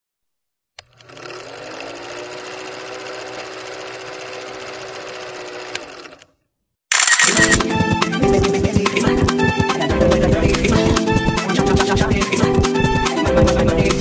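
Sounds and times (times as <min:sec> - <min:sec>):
film projector whirring: 0:00.8 - 0:06.3.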